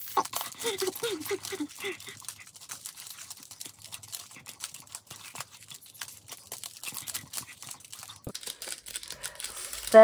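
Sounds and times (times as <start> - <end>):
plastic packets clicking and crinkling: 0.0 - 10.0.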